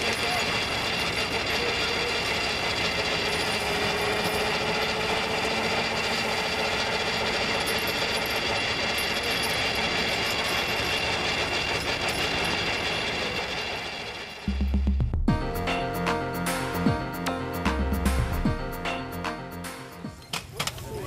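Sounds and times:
threshing machine clatter: 0:00.0 - 0:14.5
high mechanical whines: 0:00.0 - 0:14.6.

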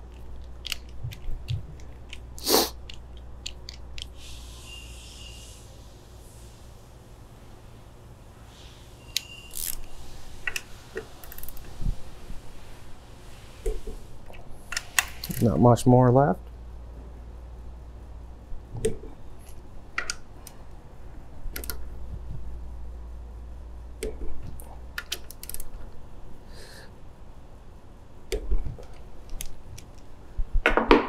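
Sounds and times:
torque wrench clicking: 0:09.1 - 0:09.9.

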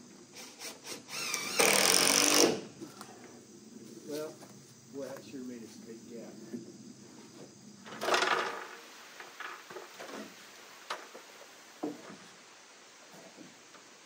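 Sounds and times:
wooden boards scraping: 0:07.4 - 0:12.4
wood knocking on wood: 0:11.8 - 0:12.2.

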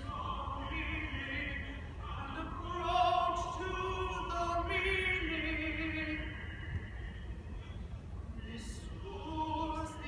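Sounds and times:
person singing slow melody: 0:00.0 - 0:10.0.

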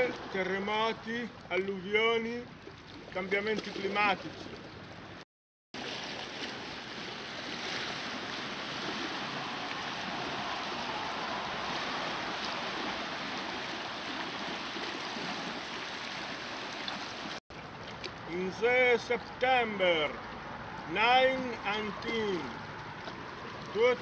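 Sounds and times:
lake waves lapping on rocky shore: 0:05.8 - 0:18.3, 0:22.0 - 0:24.0.

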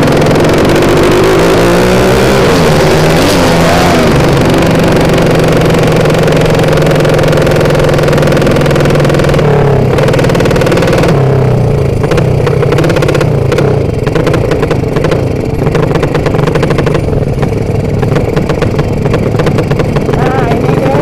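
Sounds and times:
loud motorcycle engine: 0:00.0 - 0:21.0.

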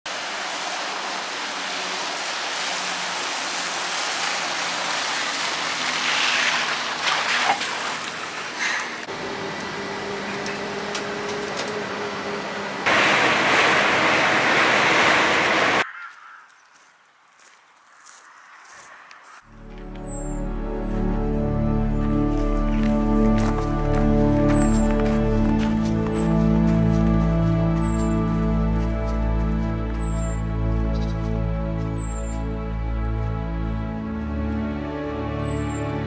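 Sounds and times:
tyres hissing on wet road: 0:00.1 - 0:09.4, 0:11.8 - 0:15.8
bus engine humming: 0:00.1 - 0:15.8, 0:19.5 - 0:36.0
rush of road noise: 0:00.1 - 0:16.1.

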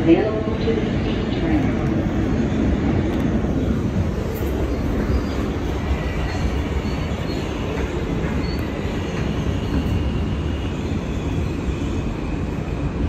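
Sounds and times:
subway wheels rumbling: 0:00.0 - 0:13.0
wheels squealing: 0:04.3 - 0:11.0.

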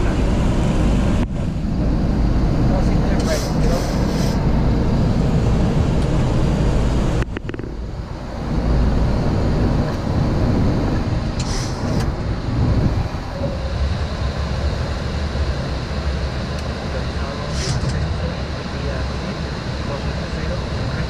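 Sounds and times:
airflow and jet engine noise: 0:00.0 - 0:21.0.

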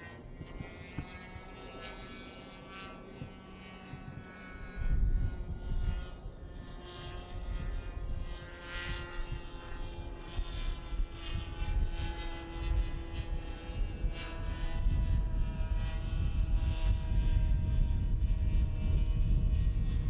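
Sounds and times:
model plane motor whine: 0:00.0 - 0:20.0
low rumble: 0:00.4 - 0:12.2.

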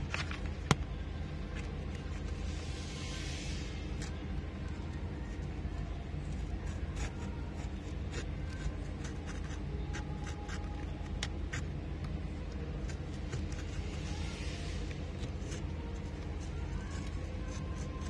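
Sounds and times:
steady low hum: 0:00.0 - 0:18.0
knife blade scratching paper: 0:06.4 - 0:11.7, 0:15.0 - 0:18.0.

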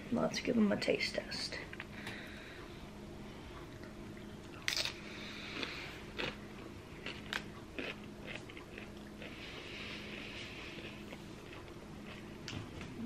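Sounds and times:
chewing crunches: 0:03.8 - 0:13.0
crunch of tortilla chip bite: 0:07.0 - 0:09.3.

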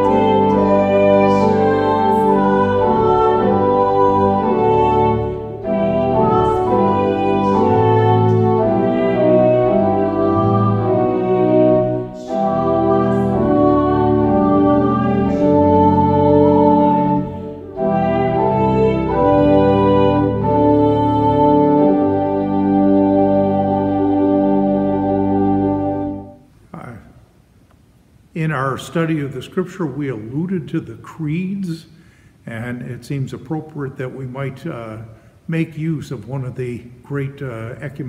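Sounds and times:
congregation singing a hymn: 0:00.0 - 0:26.4
organ chords: 0:00.0 - 0:38.0.

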